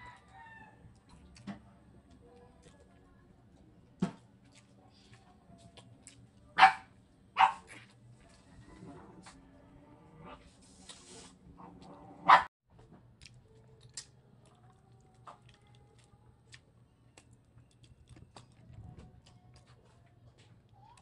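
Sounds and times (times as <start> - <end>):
chewing and sucking sounds: 13.2 - 21.0.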